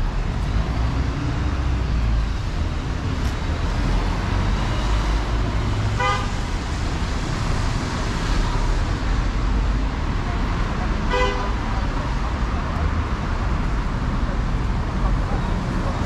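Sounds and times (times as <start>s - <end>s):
vehicle horn toot: 6.0s - 6.4s, 11.1s - 11.5s.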